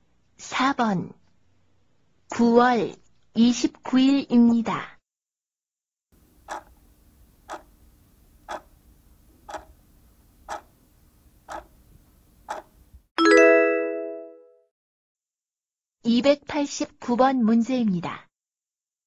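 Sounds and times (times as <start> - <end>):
clock ticking: 6.5 - 6.8, 7.5 - 7.7, 8.5 - 8.7, 9.5 - 9.8, 10.5 - 10.7, 11.5 - 11.7, 12.5 - 12.7
loud bell-like chime: 13.2 - 14.4.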